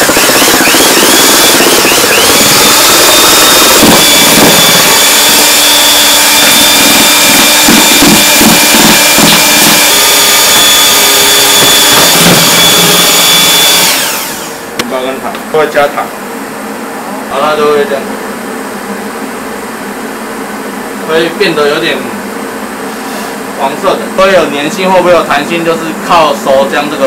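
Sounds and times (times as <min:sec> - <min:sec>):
paddle churning thick paste: 0:00.0 - 0:14.0
electric drill motor whine: 0:00.0 - 0:14.8.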